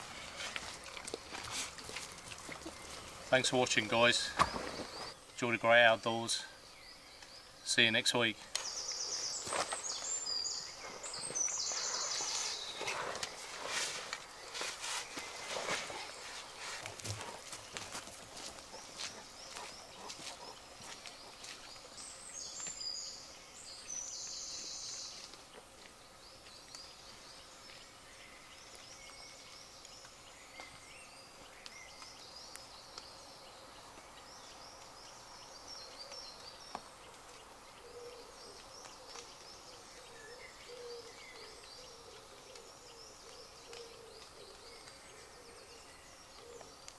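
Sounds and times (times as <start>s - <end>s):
small birds singing: 0.0s - 46.9s
low cooing call: 40.0s - 46.7s.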